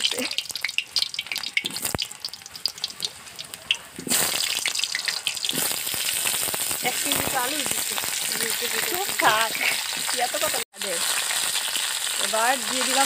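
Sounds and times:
hot oil sizzling: 0:00.0 - 0:13.0.

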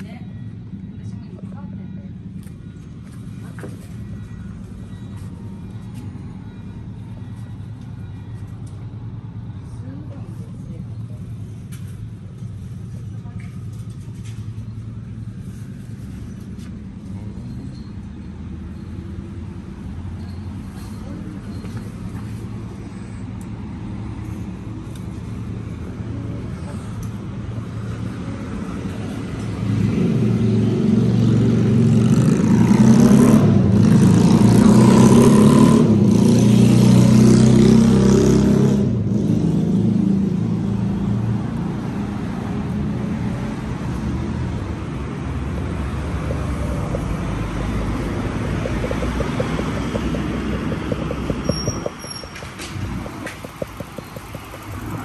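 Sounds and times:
urban background hum: 0:00.0 - 0:55.0
vehicle engine passing: 0:10.3 - 0:55.0.

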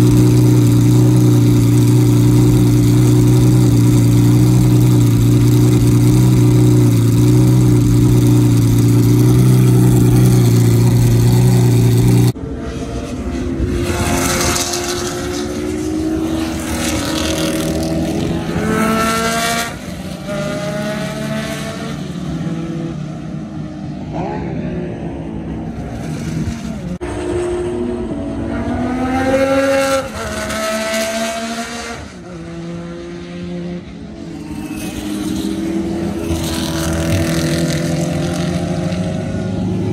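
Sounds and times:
race car engine idling: 0:00.0 - 0:12.4
sports car engines accelerating: 0:00.0 - 0:39.9.

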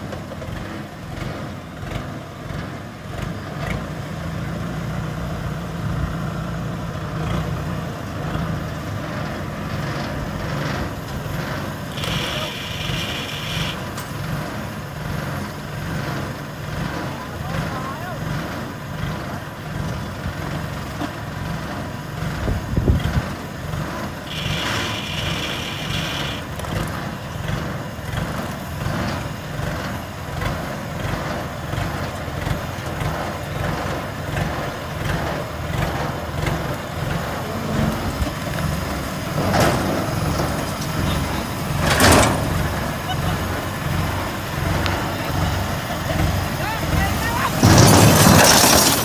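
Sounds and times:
tracked vehicle engine chugging: 0:00.0 - 0:49.0
short hissing bursts: 0:11.9 - 0:13.8, 0:24.3 - 0:26.4.

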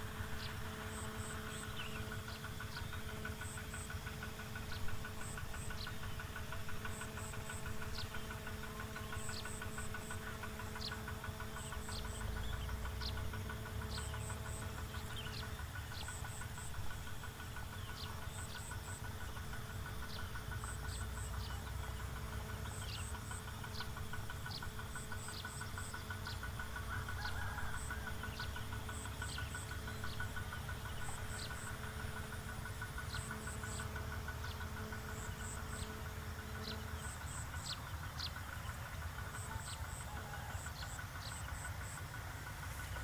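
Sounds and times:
distant engine humming: 0:00.0 - 0:43.0
pulsing insect trill: 0:00.0 - 0:43.0.

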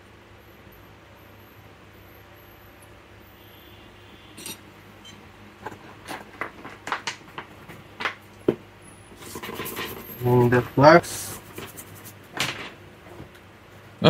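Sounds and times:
faint steady hum: 0:00.0 - 0:14.0
small tools clicking and tapping: 0:04.4 - 0:08.5.

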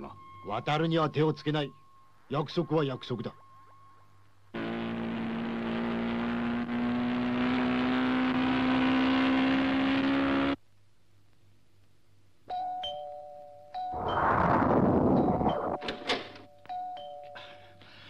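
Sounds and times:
small motorcycle engine running: 0:04.6 - 0:10.6
electric door chime: 0:13.8 - 0:17.7.

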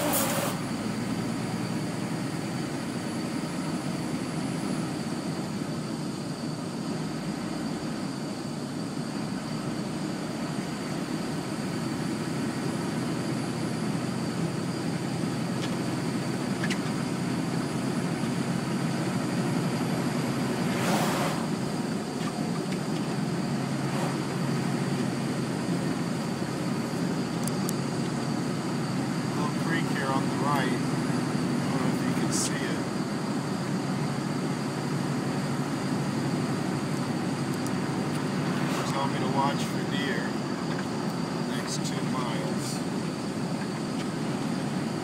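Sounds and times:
short hiss: 0:00.0 - 0:00.6
vehicle engine and tyre noise: 0:00.0 - 0:45.0.

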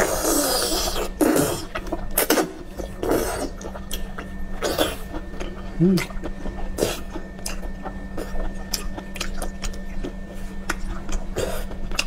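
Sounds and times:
low steady hum: 0:00.0 - 0:12.0
wet chewing smacks and clicks: 0:05.3 - 0:12.0.

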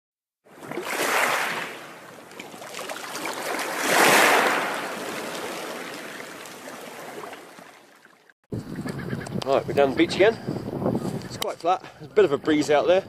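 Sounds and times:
rushing bubbling water: 0:00.5 - 0:08.3.

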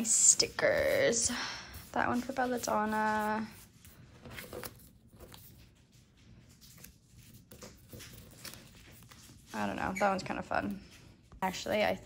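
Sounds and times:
paper rustling: 0:00.0 - 0:11.9.

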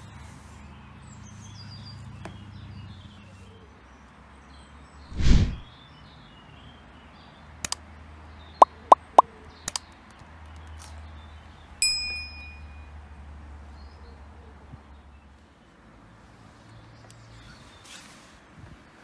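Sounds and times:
whoosh: 0:05.1 - 0:05.7
bell-like ding: 0:11.8 - 0:12.9.

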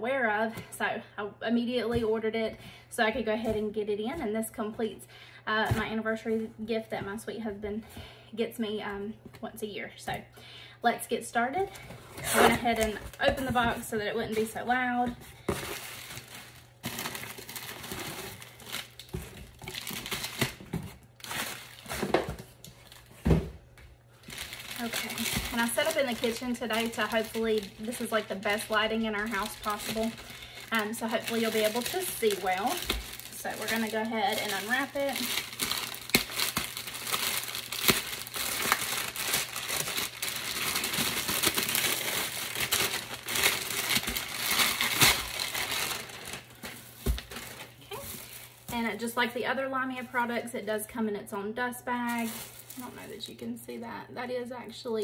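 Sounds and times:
bubble wrap crinkling: 0:12.2 - 0:23.3, 0:24.1 - 0:49.0, 0:52.0 - 0:53.4.

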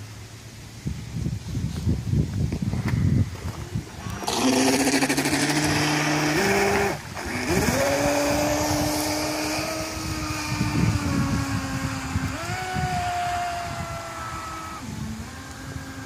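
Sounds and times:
rc boat motor whining: 0:03.9 - 0:16.0.

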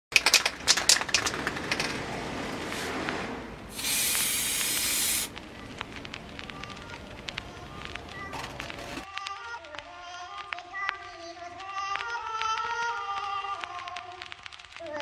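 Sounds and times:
spray can rattling: 0:00.1 - 0:02.0, 0:03.7 - 0:14.5
spray burst: 0:02.7 - 0:05.4
aerosol spray hiss: 0:03.7 - 0:05.3.

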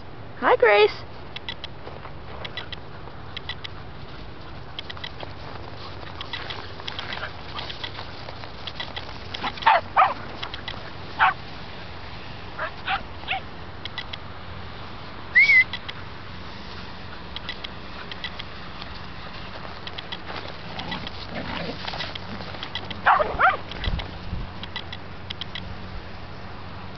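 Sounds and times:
dogs barking and yipping: 0:02.4 - 0:11.5, 0:12.5 - 0:13.6, 0:15.4 - 0:25.5.

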